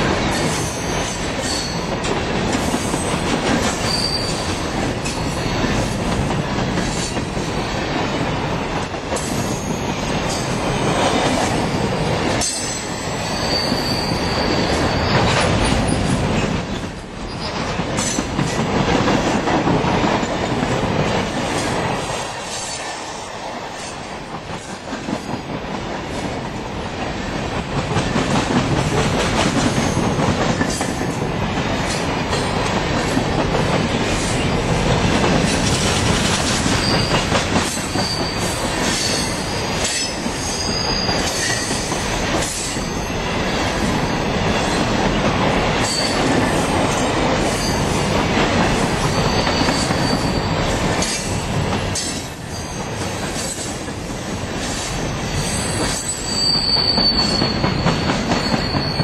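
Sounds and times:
train wheels rumbling and clacking: 0.0 - 59.0
high wheel squeals: 3.8 - 4.5, 12.6 - 16.1, 36.8 - 41.8, 49.1 - 50.6, 55.4 - 59.0.

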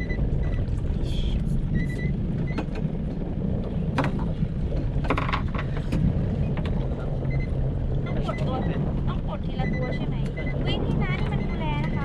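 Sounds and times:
boat engine idling: 0.0 - 12.0
knocks and rattles: 2.4 - 7.1.

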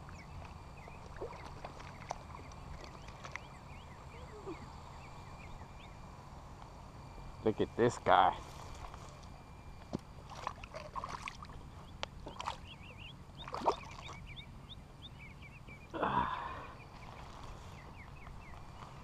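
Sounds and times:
fish thrashing and splashing: 0.4 - 3.5, 10.2 - 11.6, 12.2 - 12.6, 13.4 - 14.2.

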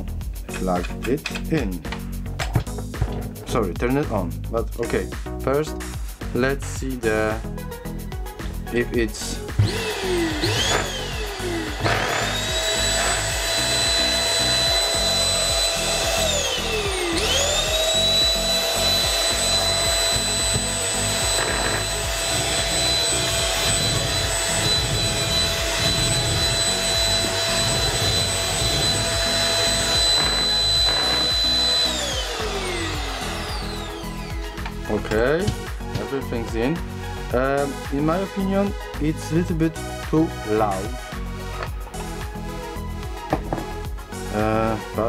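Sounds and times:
handheld vacuum cleaner motor running: 9.4 - 36.1.

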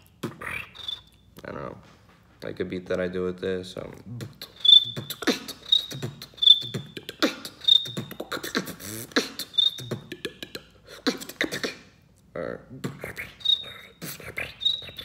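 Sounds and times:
person beatboxing: 0.0 - 1.0, 3.8 - 12.0, 12.6 - 15.0
high whistle notes: 0.0 - 1.2, 4.4 - 10.2, 13.4 - 15.0.

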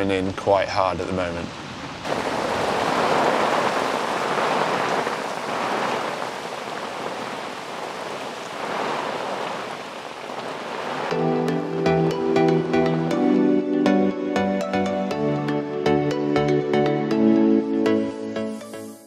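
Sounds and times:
heavy rain and hail on ground: 0.0 - 11.8.

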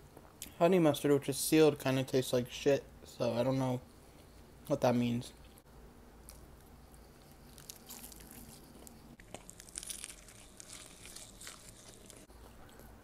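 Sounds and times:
crunchy chewing: 6.2 - 13.0.

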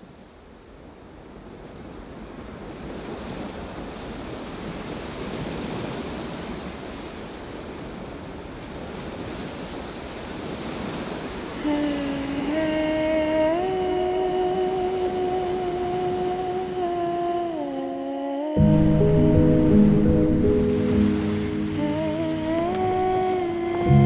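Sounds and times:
sea waves washing: 1.8 - 24.0.

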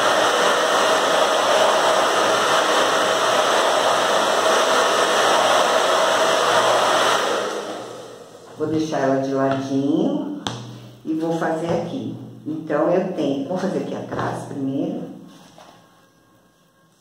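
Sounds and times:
hair dryer blowing: 0.0 - 9.6.

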